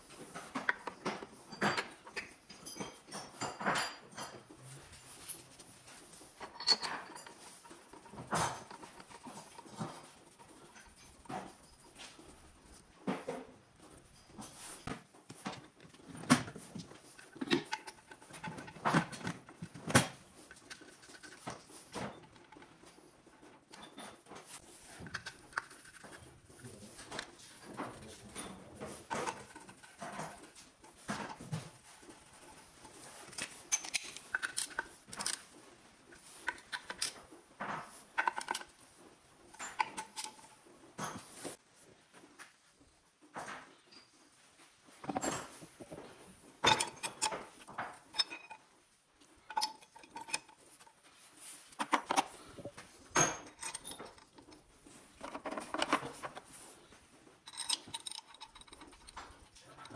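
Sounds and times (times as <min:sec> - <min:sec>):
metal tools clinking: 0:00.1 - 0:12.8, 0:23.6 - 0:35.6, 0:45.0 - 0:48.7, 0:49.3 - 0:56.7, 0:57.4 - 0:59.9
gloved hands handling engine parts: 0:03.9 - 0:37.2, 0:45.0 - 0:59.9.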